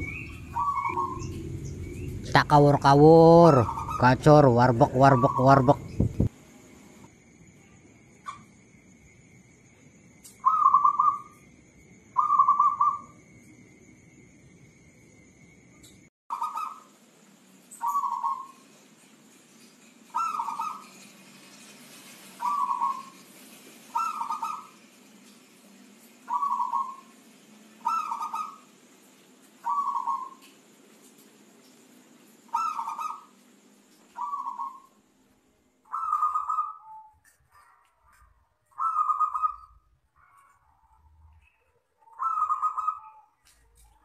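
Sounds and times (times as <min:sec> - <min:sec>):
dove cooing: 0:00.0 - 0:02.6, 0:03.4 - 0:04.2, 0:12.2 - 0:13.1, 0:17.8 - 0:18.6, 0:20.1 - 0:20.9, 0:22.4 - 0:23.2, 0:23.9 - 0:24.8, 0:26.3 - 0:27.1, 0:27.8 - 0:28.7, 0:29.6 - 0:30.4, 0:32.5 - 0:33.3, 0:34.2 - 0:35.0, 0:35.9 - 0:40.5, 0:41.4 - 0:43.4.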